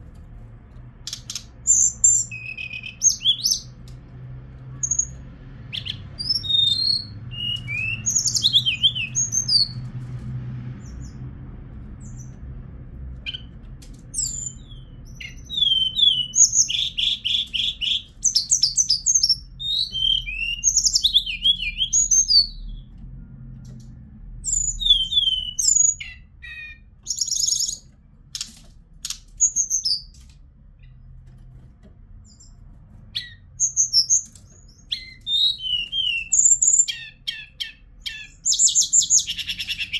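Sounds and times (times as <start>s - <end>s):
bird singing whistles and trills: 1.1s - 3.7s, 4.8s - 9.8s, 14.2s - 22.9s, 24.4s - 27.9s, 29.0s - 30.1s, 33.1s - 39.9s.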